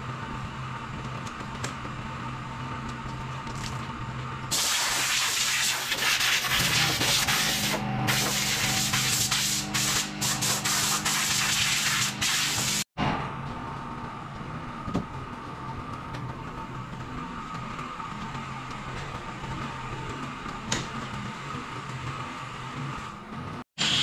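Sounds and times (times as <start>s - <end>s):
hose water spraying on metal: 4.5s - 12.8s.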